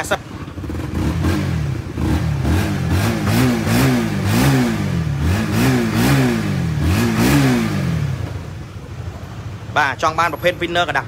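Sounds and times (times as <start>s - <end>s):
motorcycle engine revving: 0.0s - 8.8s.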